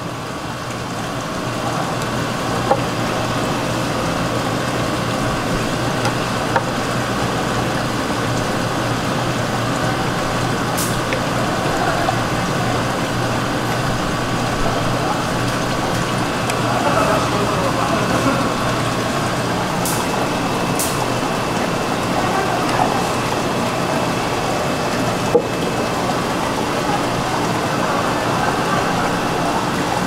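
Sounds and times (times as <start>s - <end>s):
low machine hum: 0.0s - 30.0s.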